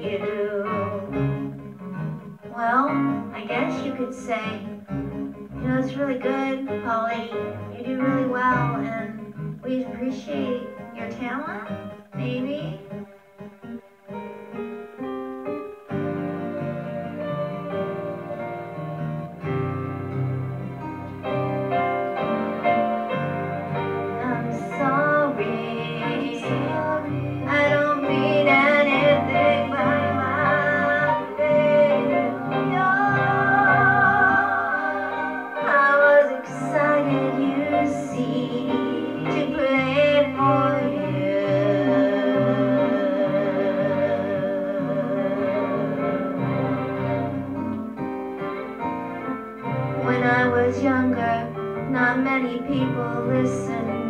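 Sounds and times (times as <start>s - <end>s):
instrumental backing with bass: 0.0s - 54.0s
person singing with vibrato: 24.0s - 47.8s, 50.0s - 54.0s.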